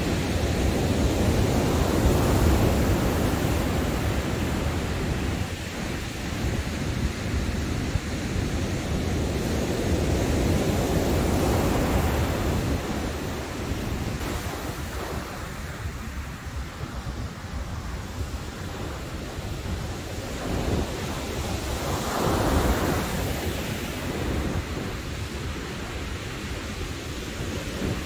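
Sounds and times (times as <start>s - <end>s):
waves breaking: 0.0s - 28.0s
wind buffeting microphone: 0.0s - 28.0s.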